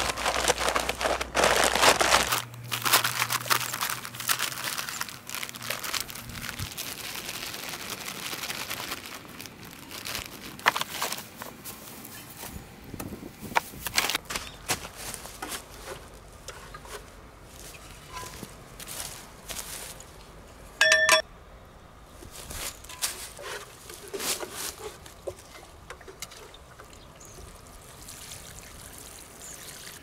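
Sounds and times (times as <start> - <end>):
cement sack crinkling: 0.0 - 12.5, 13.7 - 20.2
gritty crackles and scrapes: 0.0 - 20.7, 22.2 - 27.5.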